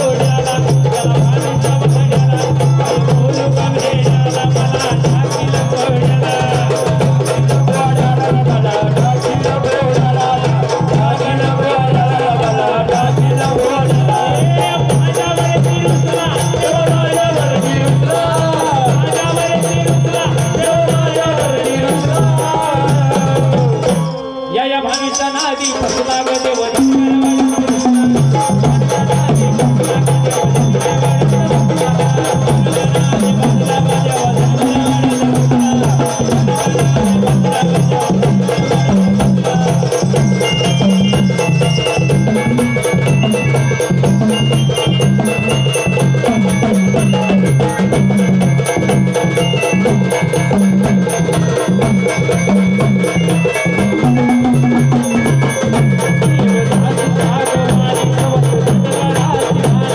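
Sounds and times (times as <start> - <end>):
fast drumming: 0.0 - 59.9
high bell-like notes: 0.0 - 59.9.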